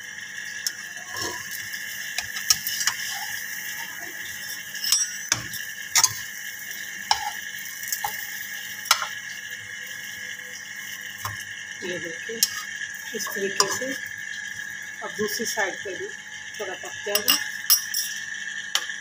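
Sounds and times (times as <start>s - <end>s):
spatula scraping a frying pan: 1.0s - 9.1s, 12.4s - 14.0s.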